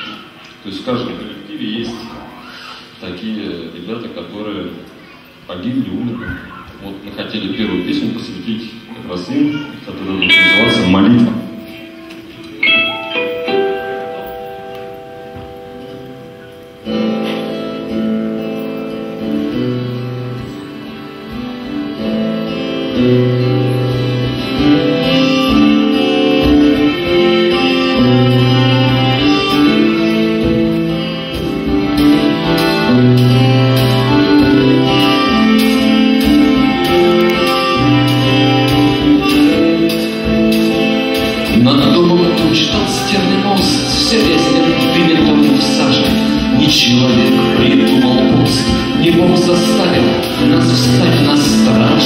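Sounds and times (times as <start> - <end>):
acoustic guitar chords: 10.2 - 52.0
accordion: 16.8 - 52.0
drums: 23.9 - 52.0.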